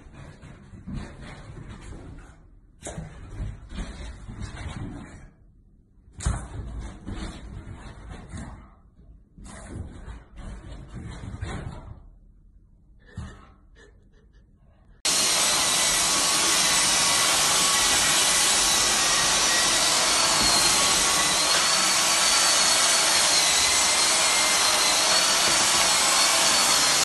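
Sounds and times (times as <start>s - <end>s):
stick vacuum whining: 15.1s - 27.0s.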